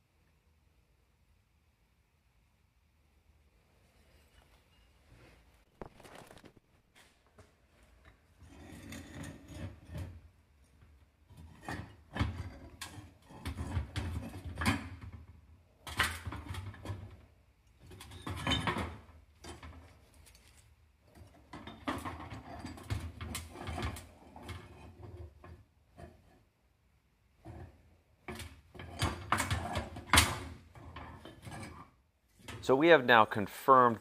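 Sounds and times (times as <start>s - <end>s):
metal clinks knocks and scrapes: 8.0s - 15.2s, 17.8s - 26.5s, 27.4s - 32.6s.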